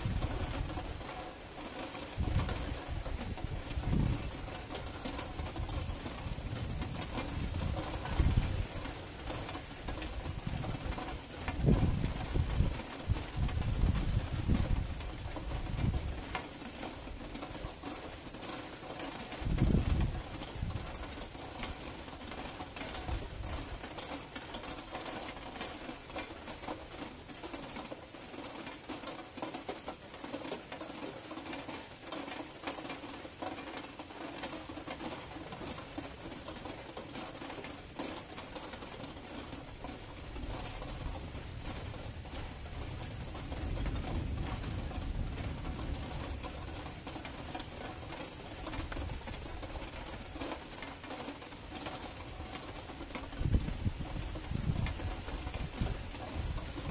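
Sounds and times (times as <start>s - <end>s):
steady rain: 0.0s - 56.9s
distant thunder rumble: 40.4s - 49.9s.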